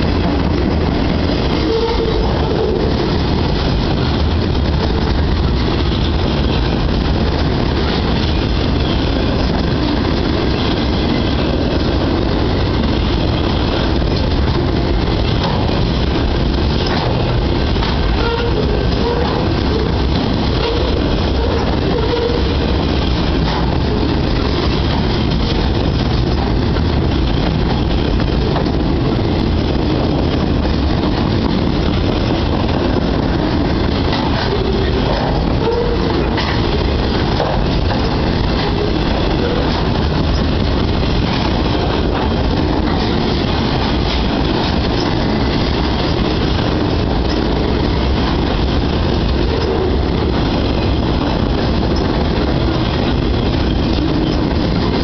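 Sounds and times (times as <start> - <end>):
train wheels rumbling on rail: 0.0 - 55.0
faint clacks: 16.8 - 17.2.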